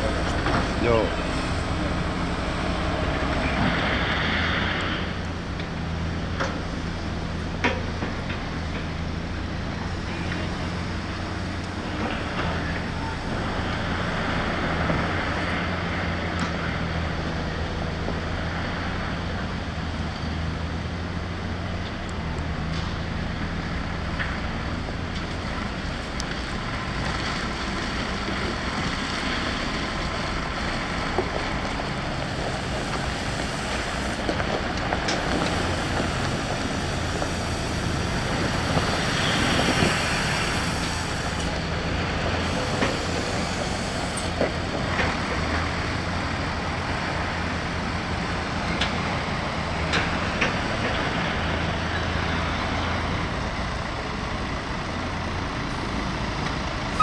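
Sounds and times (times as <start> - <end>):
heavy machinery diesel engine: 0.0 - 57.0
wind on microphone: 35.5 - 41.4.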